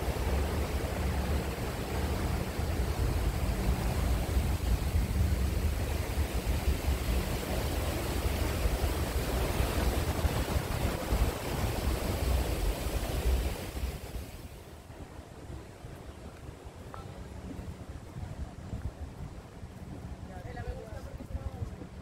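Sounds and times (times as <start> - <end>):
turbulent water rushing: 0.0 - 15.7.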